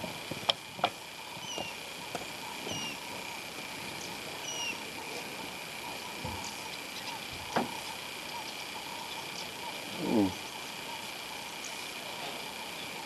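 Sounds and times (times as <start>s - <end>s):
high-pitched hum: 0.0s - 13.0s
bird whistling: 1.4s - 1.8s, 2.7s - 3.0s, 4.4s - 4.8s.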